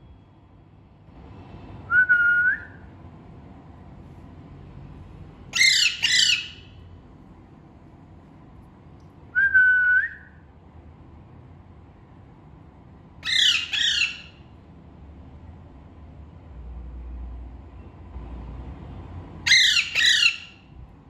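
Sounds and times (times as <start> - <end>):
parakeet squawking: 5.5 - 6.8, 13.2 - 14.4, 19.4 - 20.7
parakeet whistling: 5.6 - 6.7, 13.2 - 14.4, 19.5 - 20.6.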